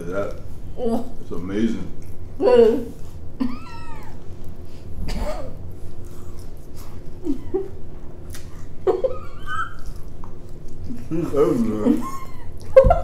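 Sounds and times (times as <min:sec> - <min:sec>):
steady low hum: 0:00.0 - 0:13.0
mouth eating noises: 0:05.7 - 0:12.8.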